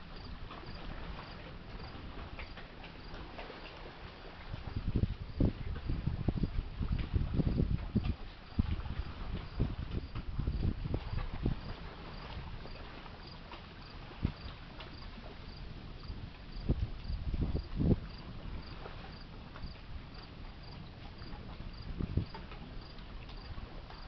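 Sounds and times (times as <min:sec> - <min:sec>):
insect chirping: 0:00.2 - 0:01.9.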